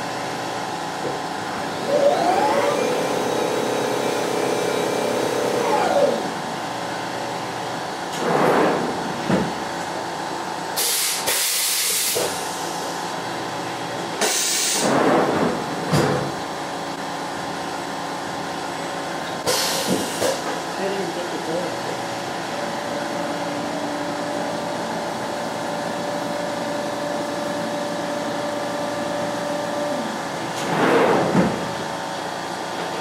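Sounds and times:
mill spindle whining: 1.0s - 6.8s
compressed air hisses: 10.8s - 12.4s
steady machine hum: 12.0s - 33.0s.

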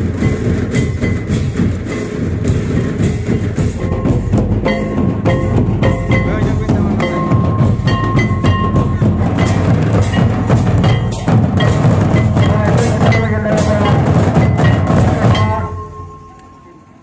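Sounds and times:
music with busy percussion: 0.0s - 17.0s
short bell-like note: 3.8s - 17.0s.

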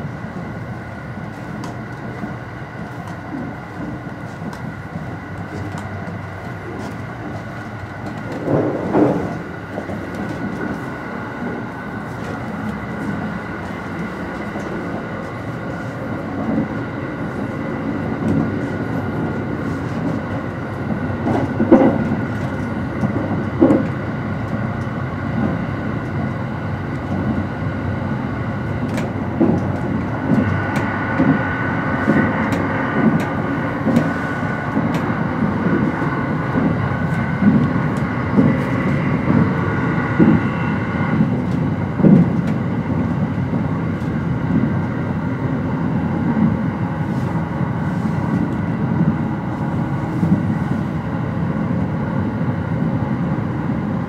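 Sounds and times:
train wheels rumbling on rails: 0.0s - 54.0s
train knocks: 1.2s - 27.6s, 28.6s - 45.0s.

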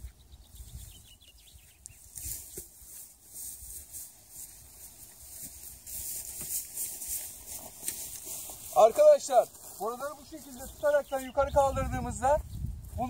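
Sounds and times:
hose dragged through dry grass: 2.0s - 12.0s.

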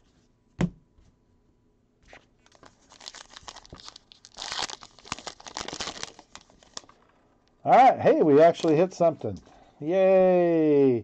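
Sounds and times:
wrapper crinkling and tearing: 2.4s - 7.1s, 8.4s - 8.9s.

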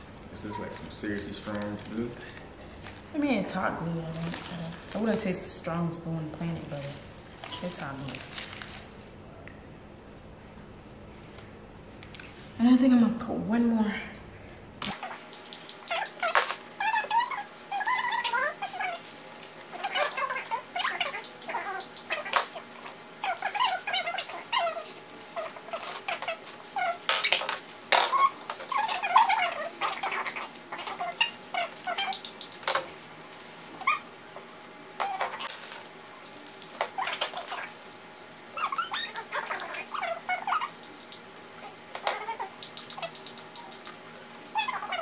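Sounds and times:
plastic wrap crinkling: 0.8s - 3.2s, 3.9s - 5.5s, 6.7s - 9.1s.

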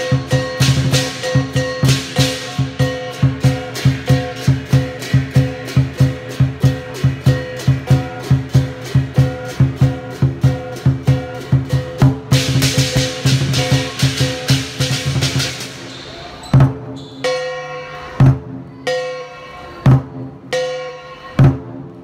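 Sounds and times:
large drum beating: 0.0s - 15.9s
cymbals crashing: 0.0s - 22.0s.

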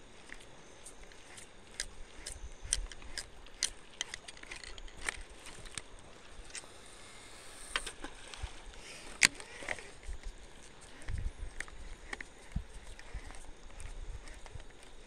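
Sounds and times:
fishing reel clicks and knocks: 0.2s - 15.0s.

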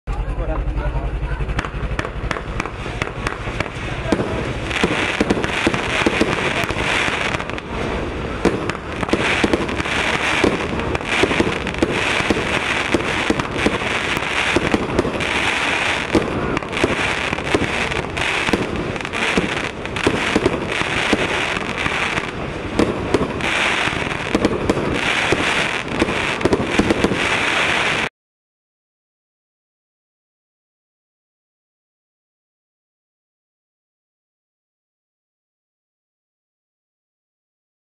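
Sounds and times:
firework launch pops and crackling: 1.5s - 28.1s
firework hissing bursts: 1.9s - 28.1s.

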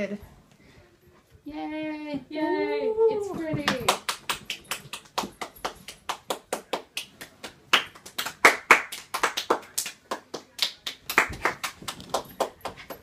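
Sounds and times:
person clapping: 3.7s - 13.0s.

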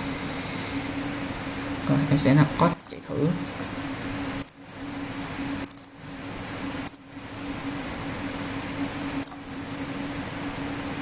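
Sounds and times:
fan hum and hiss: 0.0s - 11.0s
mouse clicks: 5.6s - 5.9s.

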